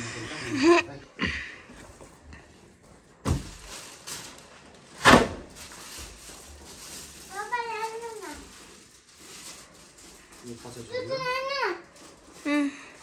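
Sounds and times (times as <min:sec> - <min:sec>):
packaging rustling: 0:02.8 - 0:13.0.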